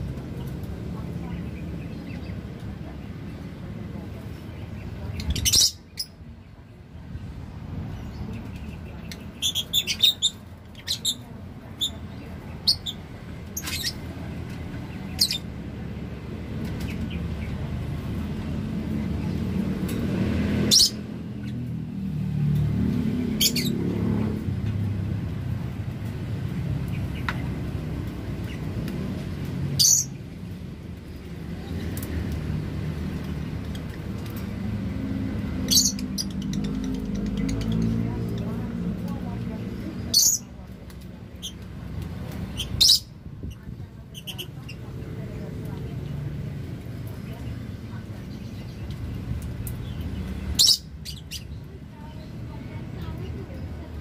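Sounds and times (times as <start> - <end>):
lovebirds chirping: 4.2 - 16.0, 33.2 - 46.0, 46.8 - 54.0.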